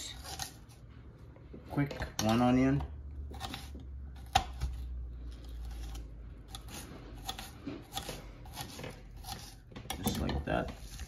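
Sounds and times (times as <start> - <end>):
knife cutting on cutting board: 3.2 - 11.0.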